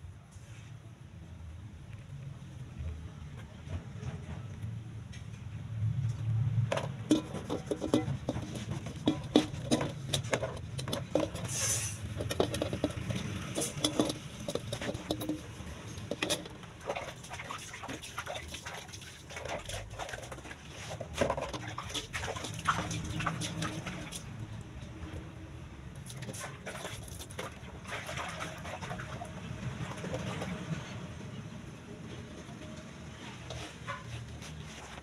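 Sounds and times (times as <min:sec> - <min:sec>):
low steady rumble: 0:00.0 - 0:17.5
laundry clicks and clatters: 0:06.6 - 0:24.4.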